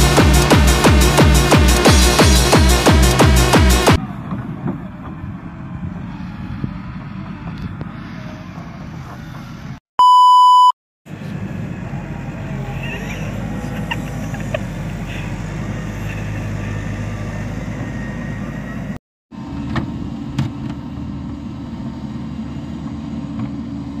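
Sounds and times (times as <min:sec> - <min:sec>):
diesel engine running: 0:00.0 - 0:09.8, 0:11.1 - 0:24.0
test tone beep: 0:10.0 - 0:10.8.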